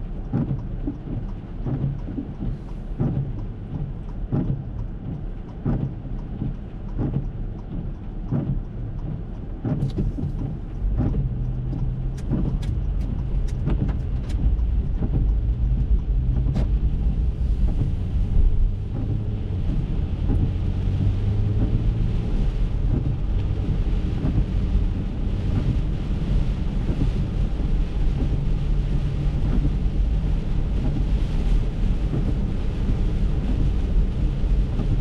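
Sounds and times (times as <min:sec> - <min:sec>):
car engine picking up: 0:00.0 - 0:35.0
rain on windshield: 0:00.0 - 0:35.0
windshield wipers sweeping: 0:00.0 - 0:35.0
tyres hissing on wet road: 0:09.9 - 0:35.0.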